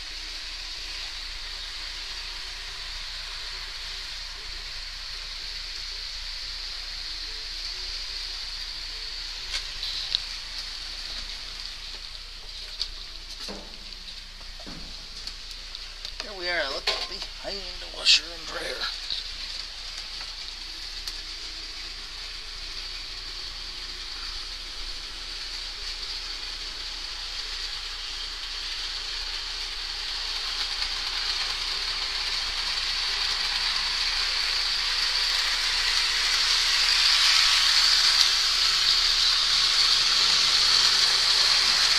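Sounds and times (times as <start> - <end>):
model train rolling hiss: 0.0 - 41.9.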